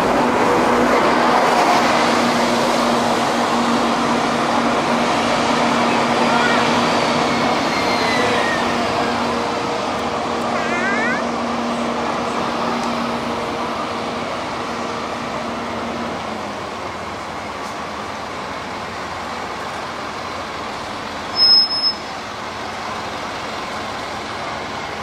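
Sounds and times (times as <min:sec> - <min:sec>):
bus driving past: 0:00.0 - 0:25.0
street traffic noise: 0:00.0 - 0:25.0
high-pitched squeal: 0:06.5 - 0:09.4.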